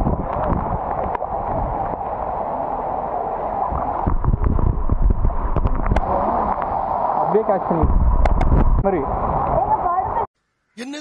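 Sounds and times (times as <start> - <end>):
wind buffeting microphone: 0.0 - 2.1, 3.6 - 6.7, 7.7 - 10.3
rain and floodwater: 0.0 - 10.3.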